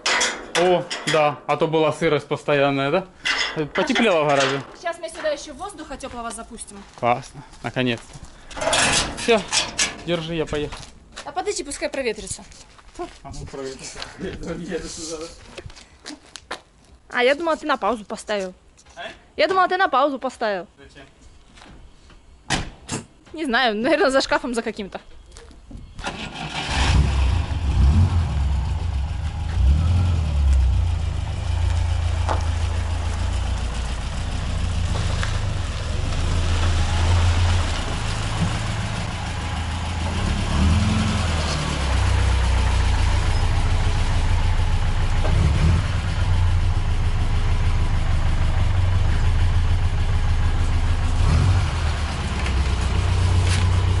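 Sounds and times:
car engine starting and idling: 26.0s - 54.0s.

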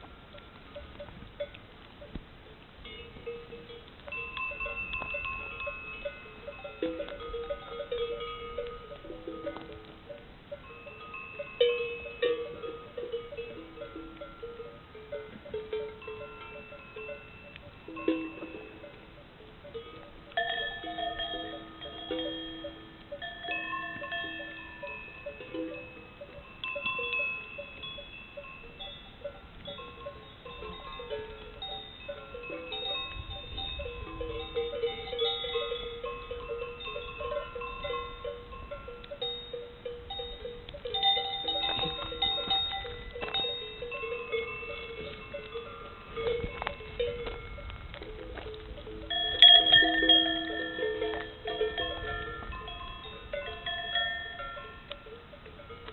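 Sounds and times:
cowbells clanking: 2.8s - 55.9s
loud bell clang: 49.1s - 55.0s.

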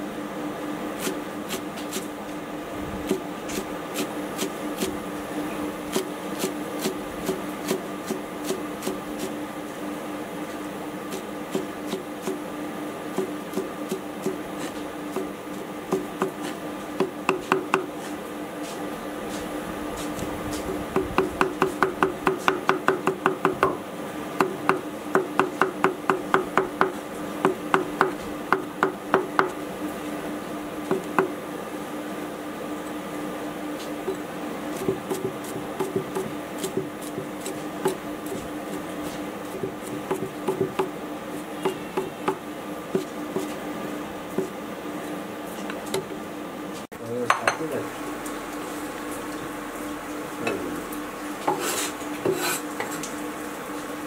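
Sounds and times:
cleaver chopping on wooden block: 15.1s - 17.9s, 21.0s - 23.8s, 24.4s - 29.6s, 34.8s - 38.4s, 39.6s - 40.9s.

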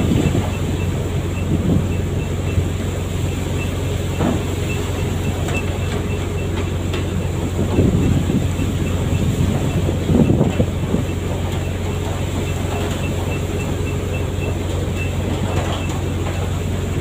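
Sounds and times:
boat engine droning: 0.0s - 17.0s.

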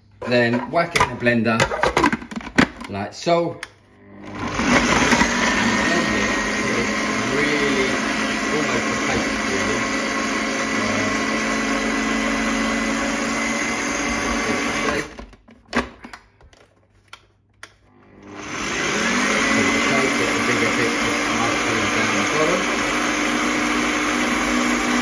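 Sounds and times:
blender motor running: 4.0s - 15.2s, 17.9s - 25.0s.

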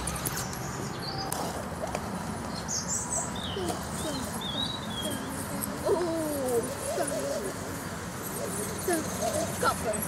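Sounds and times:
woodland background rush: 0.0s - 10.0s
small bird singing: 2.5s - 10.0s.

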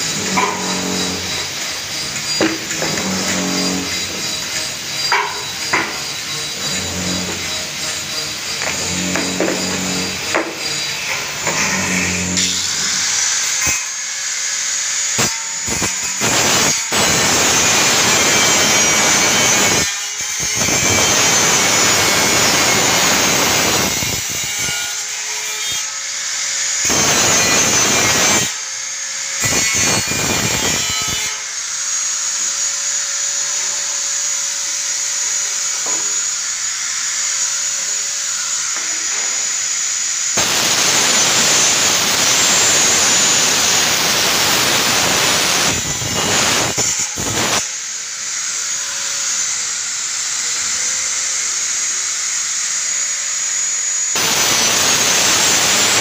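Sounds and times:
angle grinder cutting steel: 0.0s - 56.0s.

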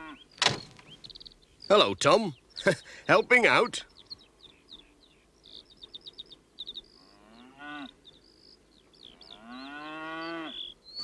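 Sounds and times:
small birds chirping: 0.0s - 11.0s
cows mooing: 7.0s - 8.0s, 9.1s - 10.6s.

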